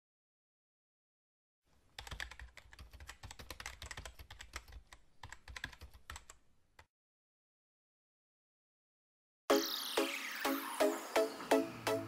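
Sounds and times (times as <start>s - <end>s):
fast typing on laptop keyboard: 1.9s - 6.9s.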